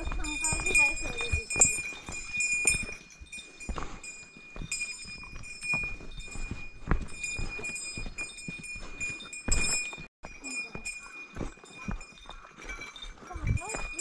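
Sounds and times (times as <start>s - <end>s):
boots on dirt trail: 0.0s - 14.0s
small bell jingling: 0.0s - 14.0s.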